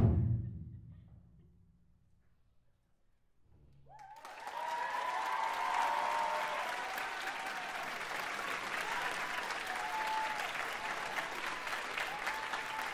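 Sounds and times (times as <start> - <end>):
whooping cheers: 3.8 - 12.9
audience applause: 3.9 - 12.9.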